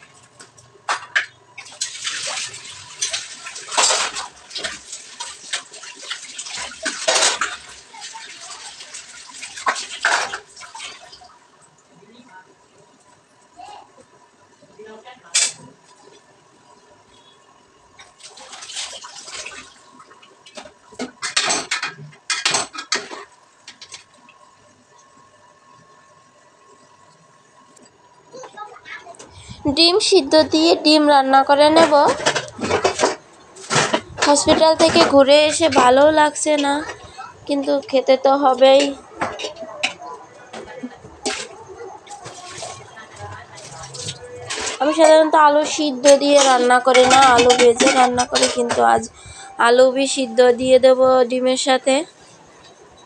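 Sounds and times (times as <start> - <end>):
tap water running into sink: 0.9 - 11.4
dishes clinking: 20.6 - 24.1, 31.7 - 36.0, 38.7 - 42.8, 43.6 - 49.6
steel utensils clattering: 31.6 - 37.2, 38.6 - 50.4.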